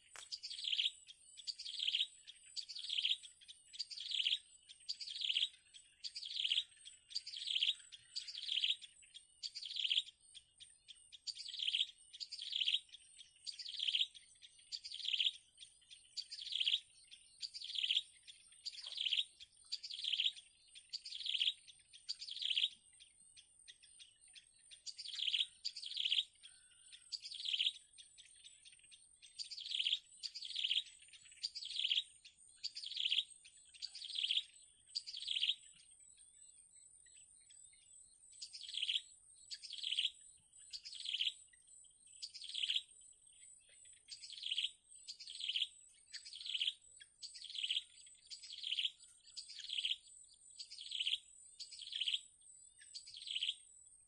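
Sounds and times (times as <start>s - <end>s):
bird chick cheeping: 0.0s - 28.8s.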